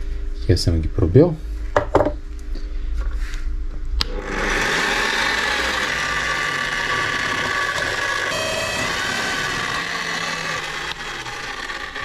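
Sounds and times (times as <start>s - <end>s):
drill press drilling steel sheet: 4.1s - 12.0s.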